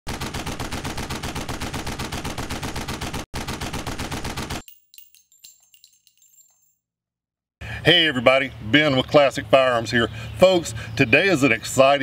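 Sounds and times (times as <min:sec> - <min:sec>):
automatic gunfire: 0:00.1 - 0:04.6
shell casings clinking: 0:04.6 - 0:06.8.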